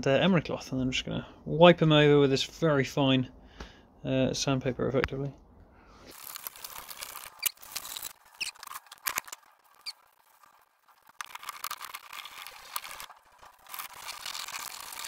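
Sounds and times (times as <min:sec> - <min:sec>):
short squeaks: 0:06.9 - 0:10.6.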